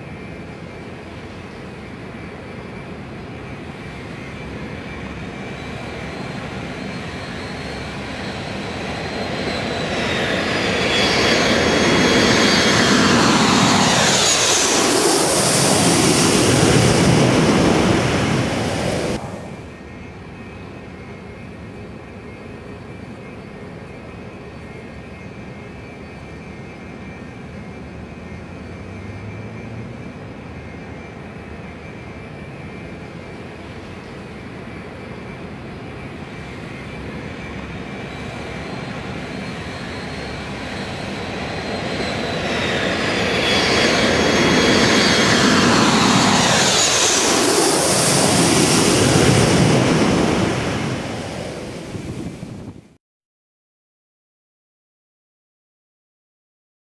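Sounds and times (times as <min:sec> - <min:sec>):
high jet engine whine: 0:00.0 - 0:53.0
jet airliner passing overhead: 0:00.0 - 0:53.0.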